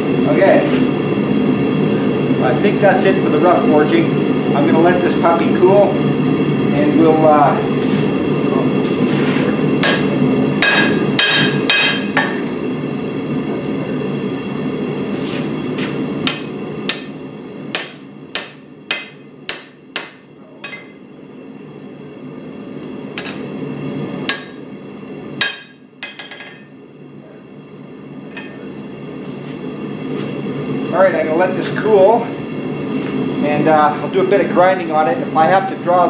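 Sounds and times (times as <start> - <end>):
hammer ringing on anvil: 10.6 - 12.4, 25.4 - 26.7.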